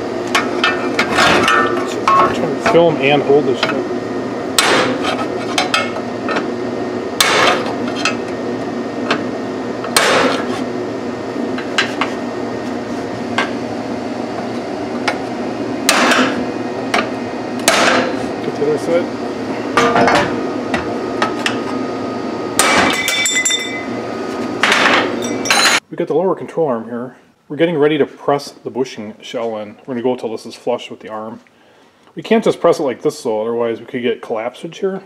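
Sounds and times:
hammer striking steel bar: 4.6s - 5.0s, 7.2s - 7.6s, 10.0s - 10.4s, 15.9s - 16.4s, 17.6s - 18.1s, 22.6s - 23.8s.

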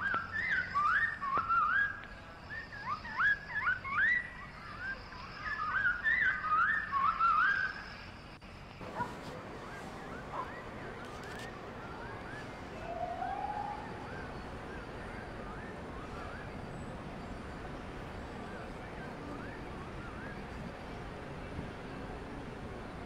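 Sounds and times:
faint outdoor hum: 0.0s - 23.0s
whistled notes sliding: 9.6s - 20.5s.

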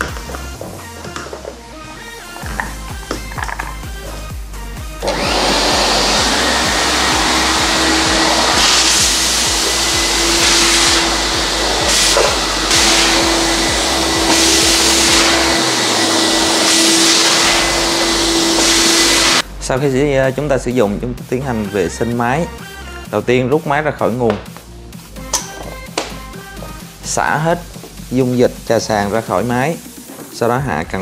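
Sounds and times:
wet and dry vacuum running: 2.4s - 19.4s.

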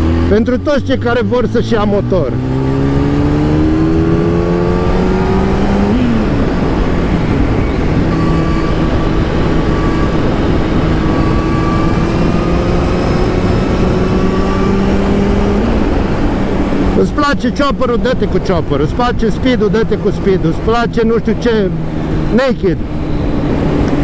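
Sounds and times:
motorcycle engine revving through gears: 0.0s - 24.0s
wind rushing: 2.4s - 17.1s.

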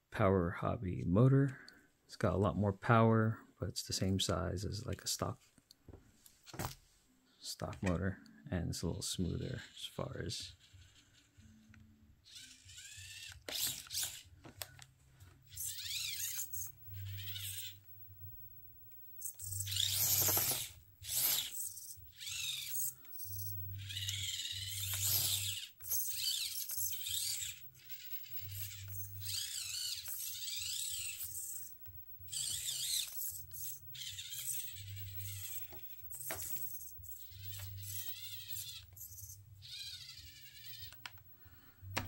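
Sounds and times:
electric motor and gears whining: 9.3s - 14.4s, 15.4s - 42.0s.

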